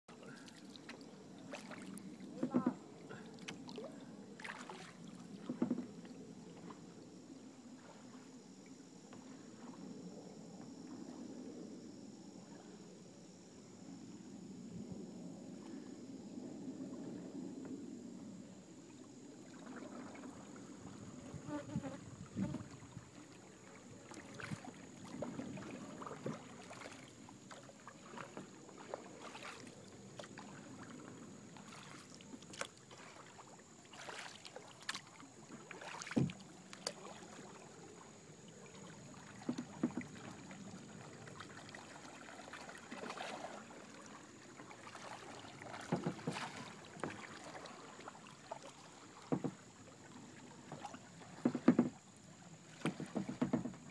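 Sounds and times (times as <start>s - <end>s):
paddle strokes splashing: 0.1s - 7.0s, 19.4s - 21.4s, 22.6s - 53.9s
paddle knocking on hull: 2.3s - 2.9s, 5.4s - 6.0s, 35.5s - 36.4s, 39.3s - 40.4s, 45.6s - 47.9s, 49.1s - 49.7s, 50.6s - 52.0s, 52.7s - 53.9s.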